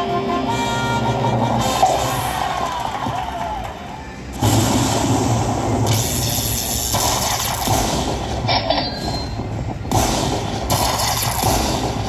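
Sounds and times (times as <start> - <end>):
low casino hum: 0.0 - 12.0
slot machine lightning effects: 0.5 - 2.8, 4.4 - 12.0.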